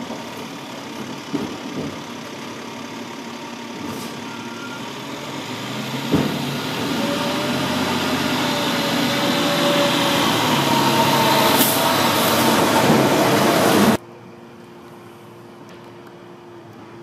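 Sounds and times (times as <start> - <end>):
truck clunk: 0.0 - 2.5, 5.8 - 14.0
garbage truck diesel engine: 0.0 - 14.0.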